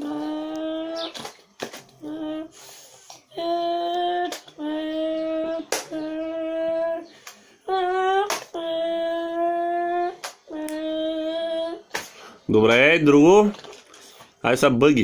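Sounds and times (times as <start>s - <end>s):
child imitating engine with voice: 0.0s - 1.4s, 2.0s - 12.0s.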